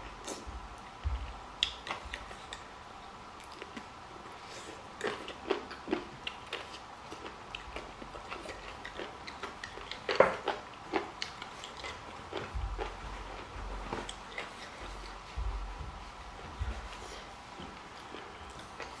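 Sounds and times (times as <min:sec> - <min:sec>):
wet chewing mouth clicks: 0:01.6 - 0:02.7, 0:05.0 - 0:15.2.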